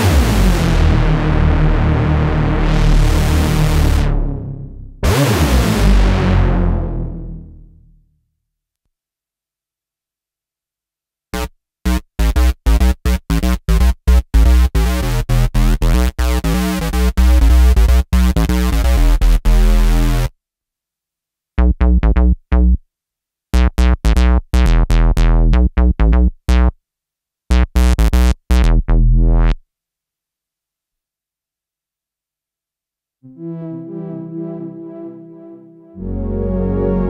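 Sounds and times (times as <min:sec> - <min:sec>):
synthesizer bass notes: 0:00.0 - 0:08.0, 0:11.4 - 0:20.3, 0:21.6 - 0:22.8, 0:23.6 - 0:26.7, 0:27.5 - 0:29.6, 0:33.3 - 0:37.0.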